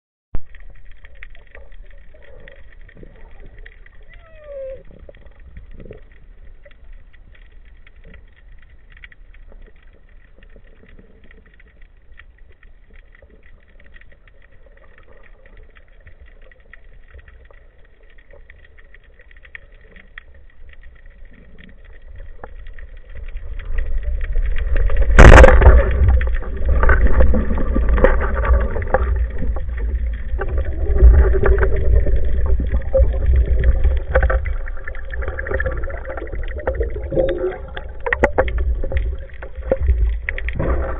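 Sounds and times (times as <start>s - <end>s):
faint underwater clicks: 0.4s - 40.9s
churning water: 21.7s - 40.9s.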